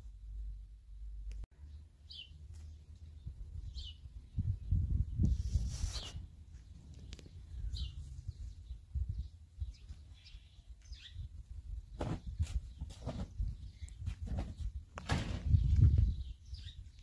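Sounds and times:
birds chirping: 1.6 - 5.3, 5.9 - 17.0.

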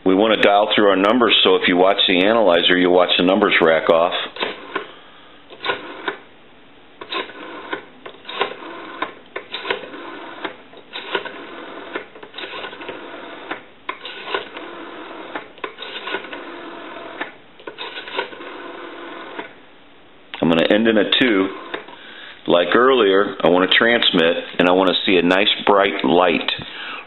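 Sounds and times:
rotary dial whirring clicks: 4.4 - 4.9, 5.5 - 6.2, 7.0 - 19.6, 21.5 - 22.0.

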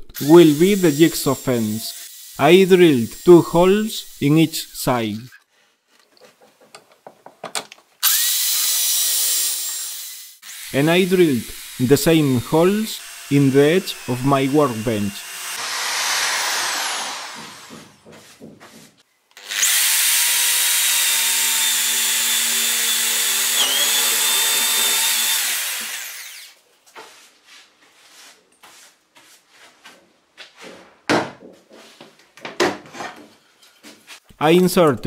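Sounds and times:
electric drill boring into wood: 0.2 - 2.4, 8.0 - 18.0, 19.4 - 26.6
thump: 17.3 - 18.9.

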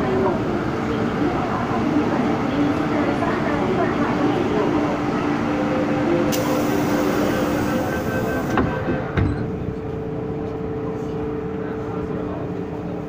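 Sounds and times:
train humming: 0.0 - 13.0
train doors hissing: 6.3 - 8.9.

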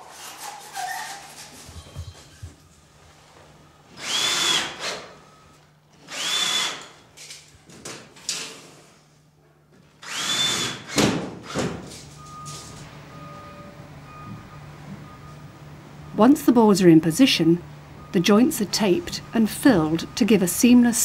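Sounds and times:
drill motor whining: 3.9 - 5.1, 6.0 - 6.9, 10.0 - 11.0.

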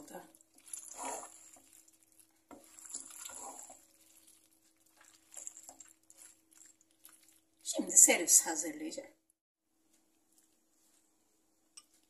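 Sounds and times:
spoon scraping and squelching: 0.4 - 7.8.

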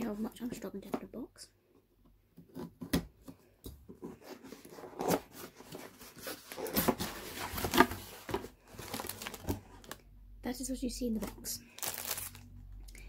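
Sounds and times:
cardboard box being opened: 4.0 - 10.0.

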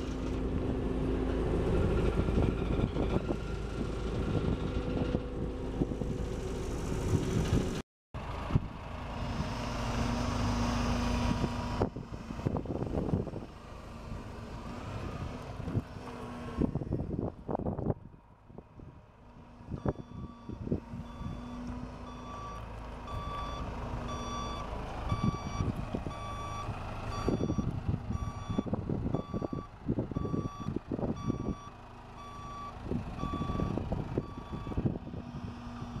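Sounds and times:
wind gusts on microphone: 0.6 - 7.8, 11.2 - 19.0, 25.1 - 31.7, 32.8 - 36.0
reversing alarm beeping: 19.8 - 34.8.

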